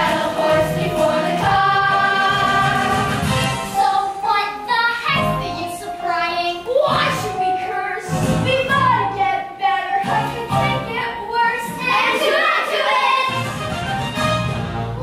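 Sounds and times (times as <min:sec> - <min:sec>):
children singing together: 0:00.0 - 0:05.0, 0:11.4 - 0:13.4.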